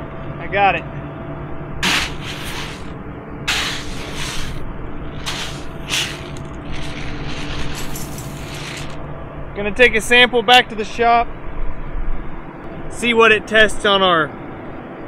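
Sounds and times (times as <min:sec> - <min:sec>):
short rustling hisses: 0:01.8 - 0:09.0.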